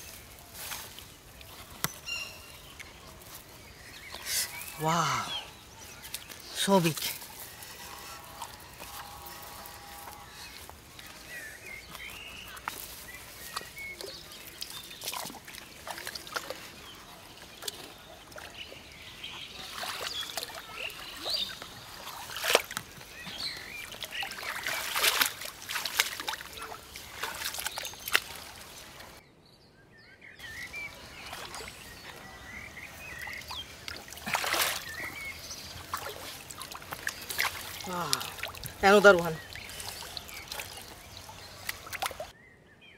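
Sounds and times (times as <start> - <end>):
birds chirping: 0.0 - 42.9
hands splashing in muddy water: 10.0 - 18.5, 19.6 - 29.2, 30.5 - 42.3.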